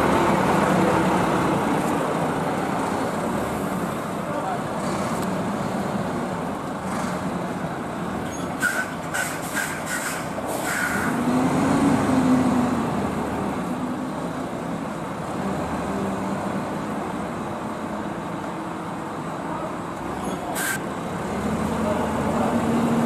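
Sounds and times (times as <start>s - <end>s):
high squeal: 8.3s - 11.2s.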